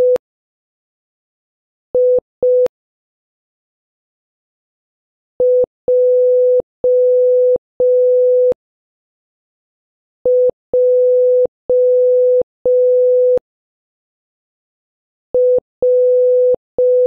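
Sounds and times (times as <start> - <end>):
morse code beeps: 15.4 - 17.0.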